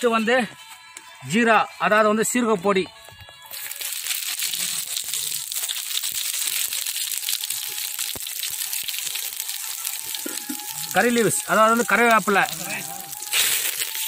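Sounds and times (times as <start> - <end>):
hot oil sizzling and crackling: 3.5 - 14.0.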